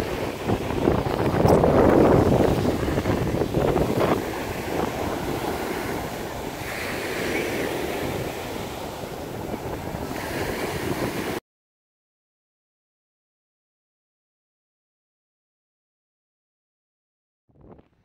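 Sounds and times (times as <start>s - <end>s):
waves washing onto beach: 0.0s - 11.4s
wind on microphone: 0.0s - 11.4s, 17.5s - 18.0s.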